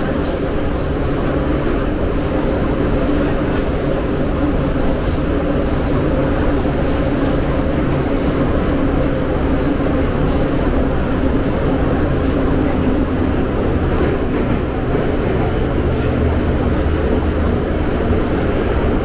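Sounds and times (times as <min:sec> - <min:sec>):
train wheels rumbling on track: 0:00.0 - 0:19.0.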